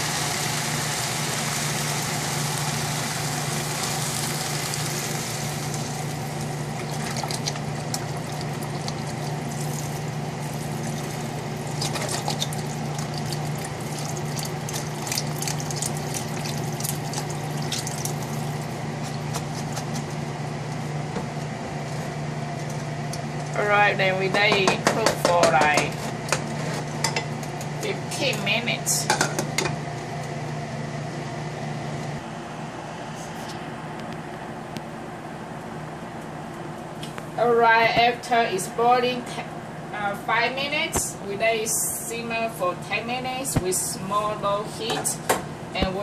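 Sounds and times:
broth pouring into saucepan: 0.0s - 18.7s.

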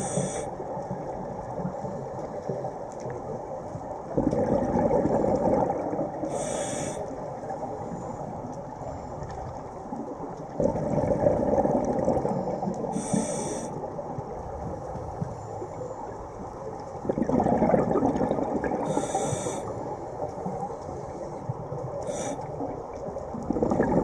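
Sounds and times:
hissing regulator inhale: 0.0s - 0.5s, 6.3s - 7.1s, 12.9s - 13.8s, 18.8s - 19.8s, 22.0s - 22.5s
rumbling exhaled bubbles: 4.1s - 6.4s, 9.3s - 13.1s, 16.9s - 20.8s, 21.4s - 24.0s.

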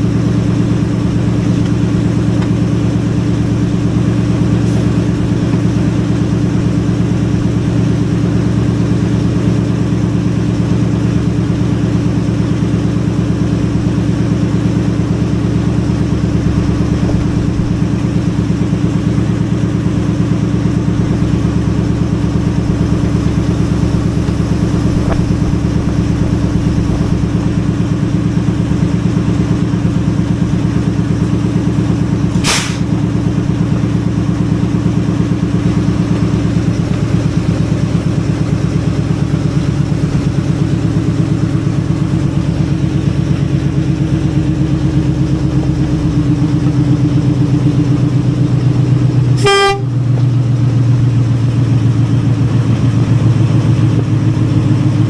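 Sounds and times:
diesel locomotive engine running: 0.0s - 55.0s
sharp knock: 32.4s - 32.9s
locomotive horn toot: 49.3s - 50.2s.

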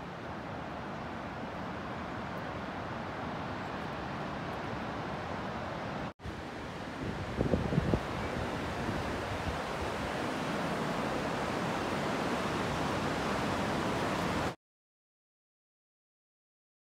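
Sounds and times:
wind noise on microphone: 6.9s - 10.5s.

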